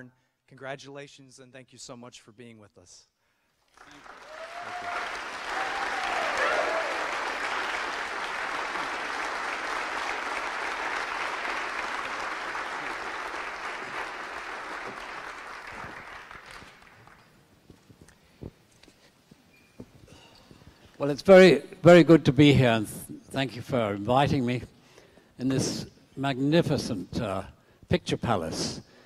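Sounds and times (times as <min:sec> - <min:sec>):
audience applauding: 0:03.7 - 0:17.4.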